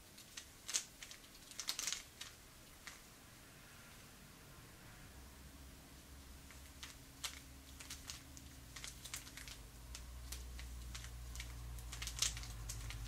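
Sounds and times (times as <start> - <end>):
puzzle cube layers clicking: 6.8 - 13.0.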